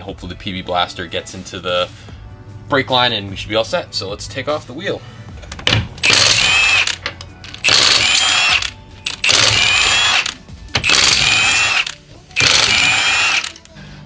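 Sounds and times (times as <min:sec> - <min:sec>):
impact wrench hammering: 0:05.7 - 0:13.6.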